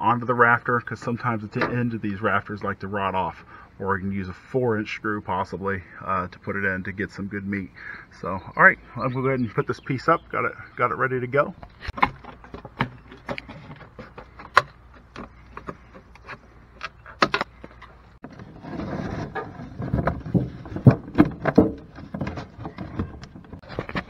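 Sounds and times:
handling clicks and knocks: 11.6s - 18.5s
plastic panels rustling: 11.7s - 24.0s.

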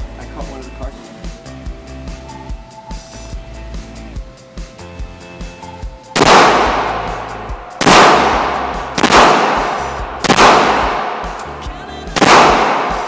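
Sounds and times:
background music with beat: 0.0s - 13.0s
handgun shots echoing indoors: 6.2s - 7.2s, 7.8s - 11.5s, 12.2s - 13.0s.

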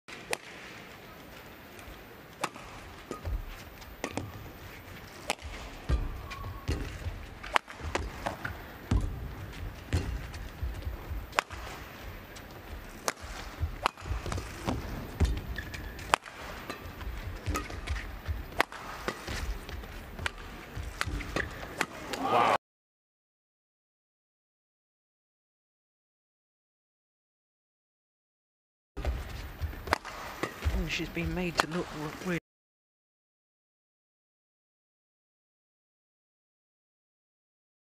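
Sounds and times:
racket hitting shuttlecock: 0.1s - 22.4s, 29.0s - 32.2s
footsteps thudding on court: 3.2s - 21.8s, 29.0s - 31.4s
shoe squeak on court: 14.8s - 16.1s.

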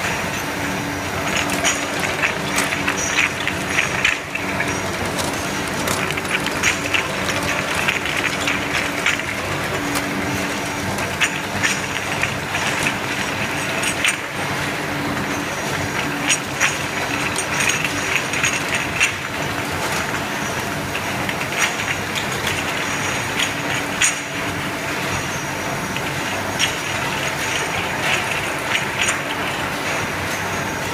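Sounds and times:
machine mechanical hum: 0.0s - 30.9s
glass bottles clinking: 1.1s - 14.4s.

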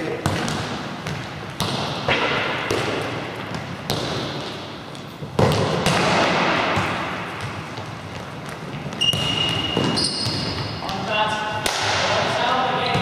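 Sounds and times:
ball thudding on hall floor: 0.2s - 12.2s.

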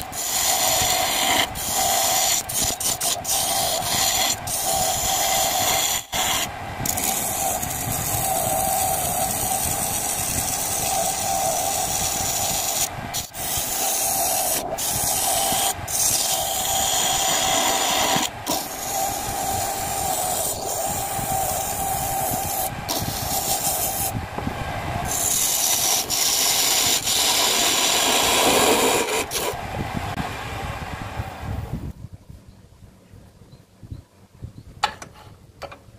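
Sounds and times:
chisel scraping turning wood: 0.0s - 24.1s, 25.1s - 29.6s
lathe humming: 0.0s - 29.8s.

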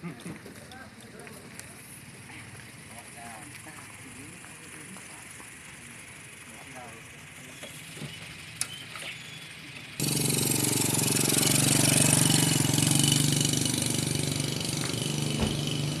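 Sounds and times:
motorbike engine running: 10.0s - 16.0s
short thump: 14.9s - 15.8s.

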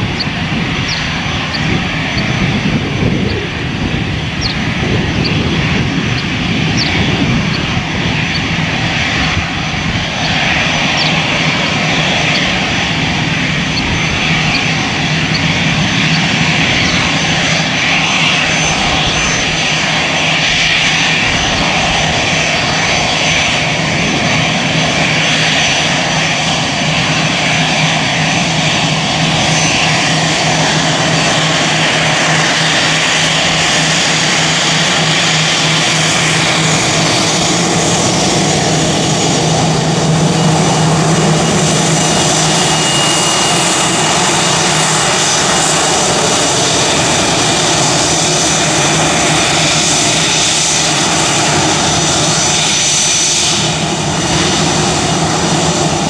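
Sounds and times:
high-pitched whistling whine: 0.0s - 56.0s
jet engines rumbling: 0.0s - 56.0s.

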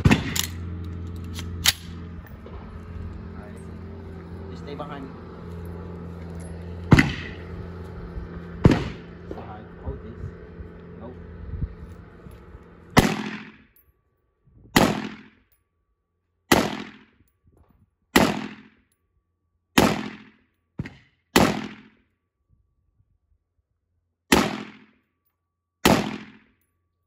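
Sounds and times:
rifle gunshots: 0.0s - 0.6s, 6.9s - 7.4s, 8.6s - 9.1s, 13.0s - 13.6s, 14.8s - 15.3s, 16.5s - 17.1s, 18.2s - 18.7s, 19.8s - 21.9s, 24.3s - 24.9s, 25.8s - 26.4s.

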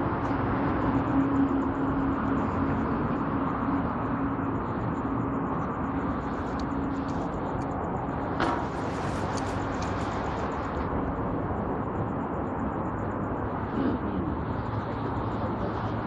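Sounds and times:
train rolling rumble: 4.2s - 11.9s.

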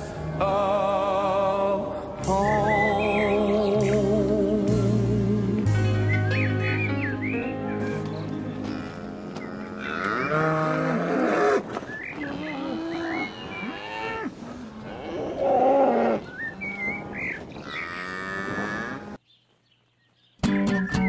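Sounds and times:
cows mooing: 7.7s - 19.2s.

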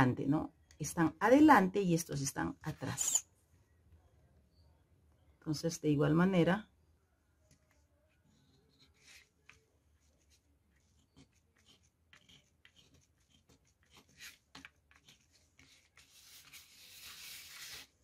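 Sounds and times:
pen scratching on paper: 8.3s - 18.0s.

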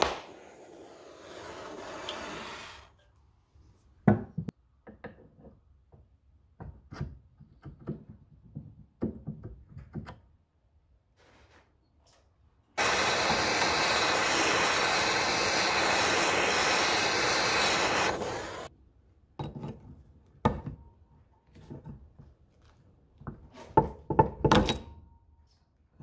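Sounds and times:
loud steady hissing: 12.8s - 18.7s.

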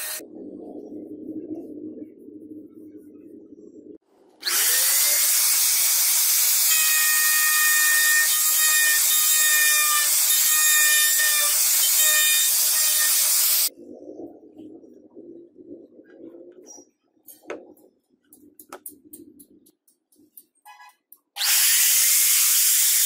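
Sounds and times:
electric router cutting wood: 0.0s - 0.2s, 4.4s - 13.7s.

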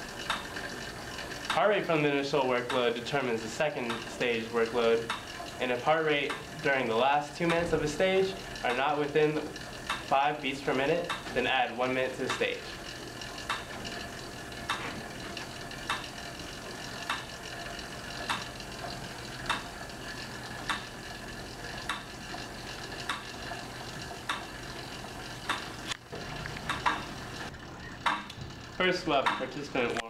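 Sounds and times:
exercise bike flywheel hiss: 0.0s - 30.0s
pedal clicks: 0.0s - 30.0s.

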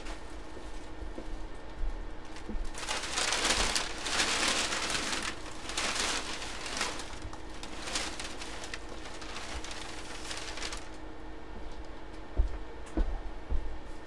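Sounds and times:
packaging rustling: 2.3s - 11.0s.

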